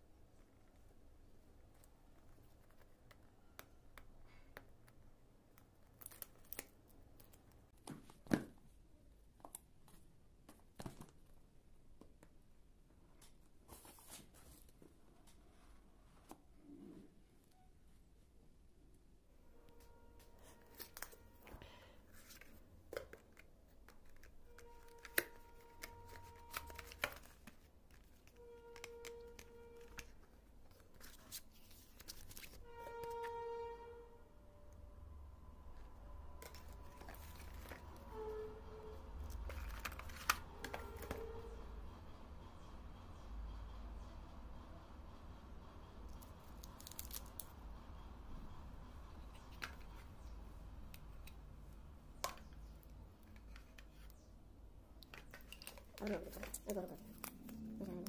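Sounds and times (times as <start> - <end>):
cardboard and plastic rustling: 20.3 - 32.7, 36.4 - 38.2, 39.2 - 41.6, 55.0 - 58.0.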